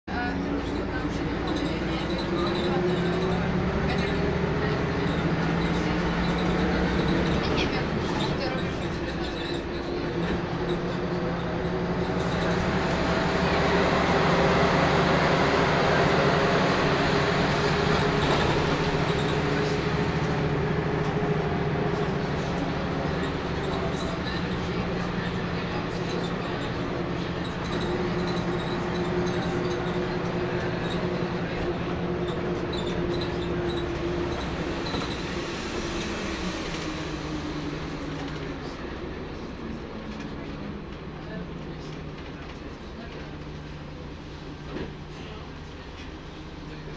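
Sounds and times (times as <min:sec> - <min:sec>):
bus diesel engine running: 0:00.0 - 0:46.9
road and cabin noise: 0:00.0 - 0:46.9
faint high squeaks: 0:32.2 - 0:35.4.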